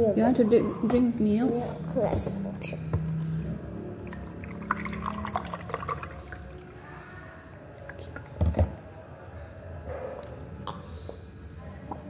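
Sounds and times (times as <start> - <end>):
milk pouring into a glass: 3.9 - 8.3.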